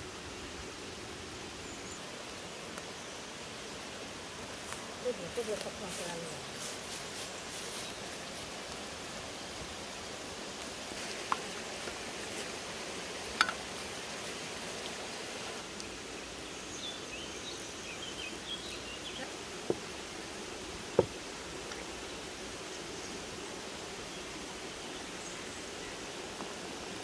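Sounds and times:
stream rushing: 0.0 - 27.0
glass teapot clinking: 13.4 - 13.6.

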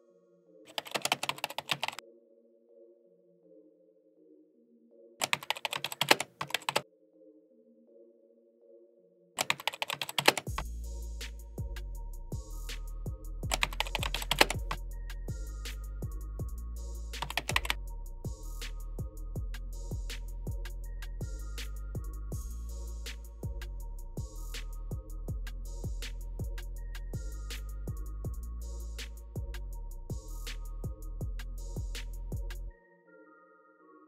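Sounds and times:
soft background music: 0.0 - 34.0
computer keyboard typing: 0.7 - 2.0, 5.2 - 6.8, 9.4 - 10.6, 13.5 - 14.8, 17.2 - 17.8.

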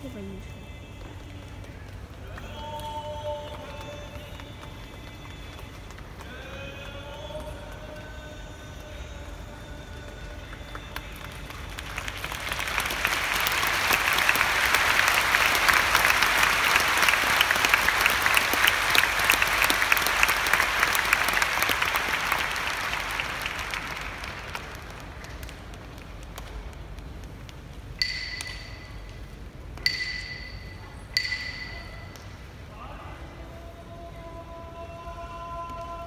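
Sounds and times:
audience clapping: 0.0 - 28.0.

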